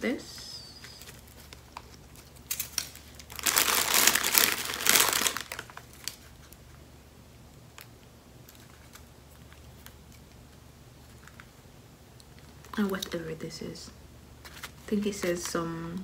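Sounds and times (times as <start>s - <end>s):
plastic packaging crinkling: 0.7s - 6.7s, 7.7s - 11.6s, 14.4s - 15.6s.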